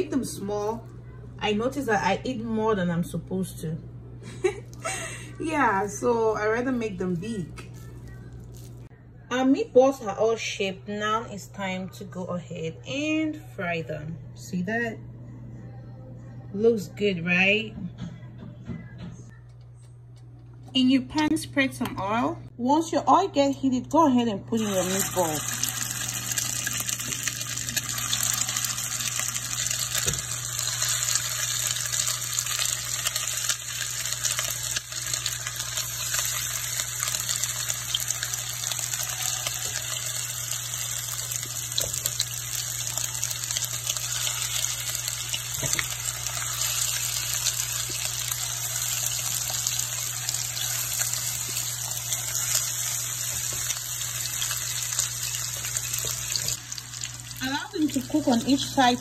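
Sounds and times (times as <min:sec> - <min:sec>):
oil sizzling in a frying pan: 0:24.6 - 0:59.0.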